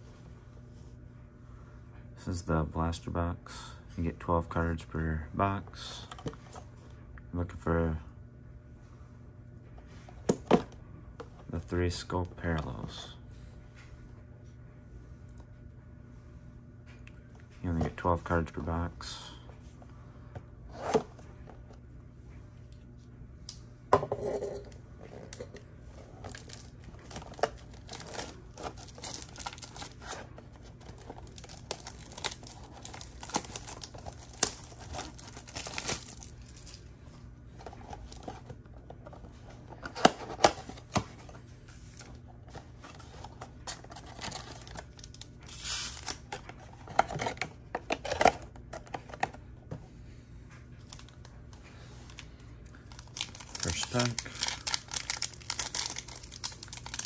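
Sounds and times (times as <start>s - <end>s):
plastic wrap crinkling and ripping: 26.2s - 36.8s, 44.0s - 46.3s, 52.8s - 57.0s.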